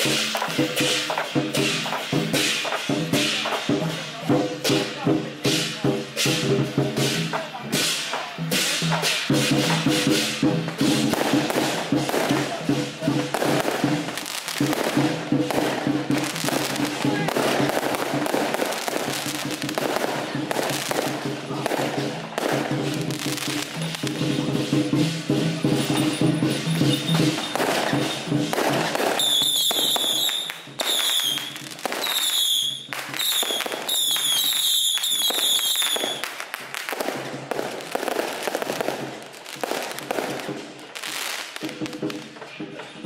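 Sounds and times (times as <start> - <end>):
firecrackers crackling and popping: 0.0 - 43.0
whistling fireworks: 25.7 - 42.4.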